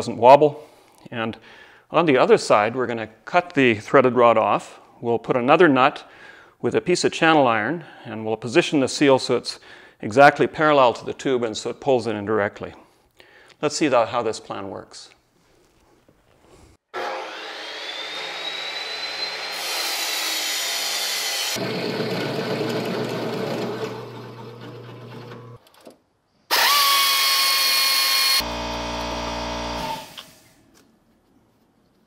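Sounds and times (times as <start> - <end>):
drill press boring through steel: 26.5 - 30.5.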